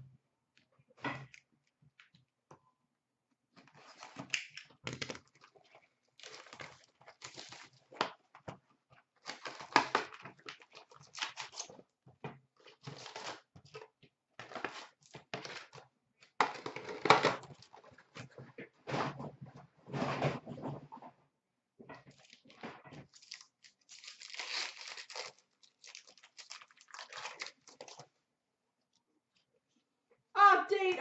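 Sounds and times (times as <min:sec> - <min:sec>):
wrappers crinkling and rustling: 0:03.8 - 0:08.0, 0:22.1 - 0:28.1.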